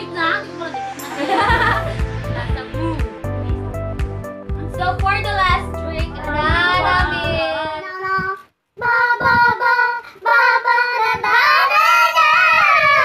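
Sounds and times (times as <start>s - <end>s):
high-pitched voices singing: 6.0s - 13.0s.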